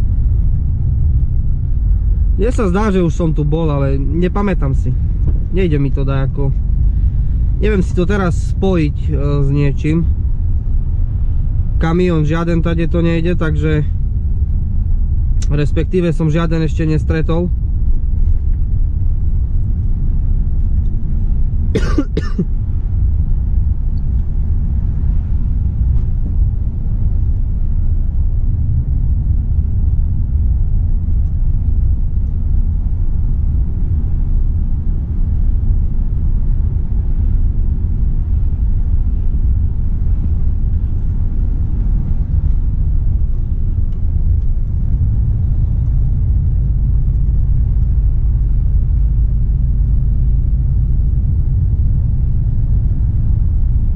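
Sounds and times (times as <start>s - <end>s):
truck cab diesel and road rumble: 0.0s - 53.9s
driver coughing: 21.7s - 22.6s.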